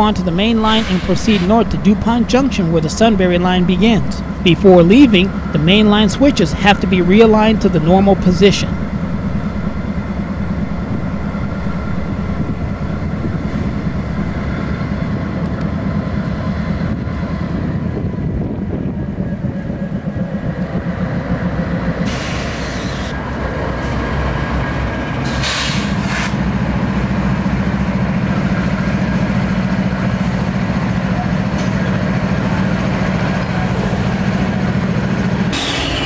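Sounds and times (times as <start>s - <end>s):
diesel locomotive engine drone: 0.0s - 36.0s
air hisses: 0.7s - 1.7s.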